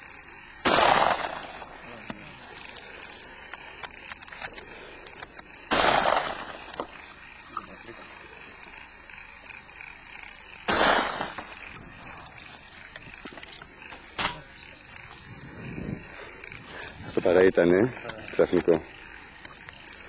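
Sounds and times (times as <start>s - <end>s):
shotgun shots: 0.6s - 1.7s, 5.7s - 6.8s, 10.7s - 11.7s.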